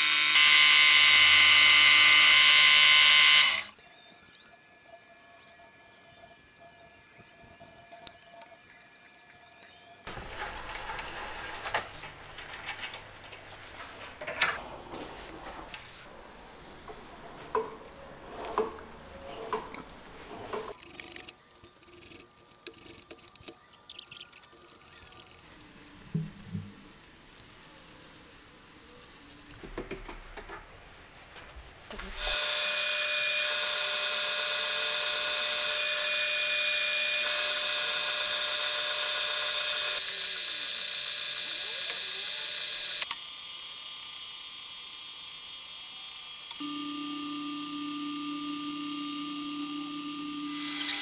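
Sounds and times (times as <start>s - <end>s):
metal lathe whining: 0.0s - 3.7s, 44.2s - 51.0s.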